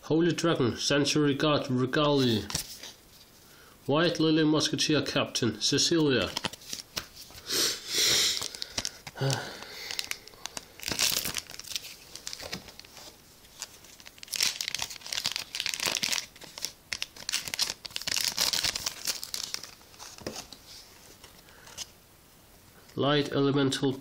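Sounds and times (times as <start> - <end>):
foil wrapper crinkling and tearing: 8.3 - 20.6.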